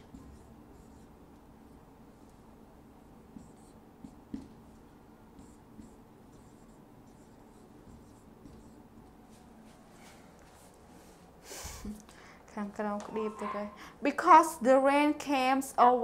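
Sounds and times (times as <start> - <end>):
marker scratching on whiteboard: 0.0 - 10.7, 13.0 - 13.8.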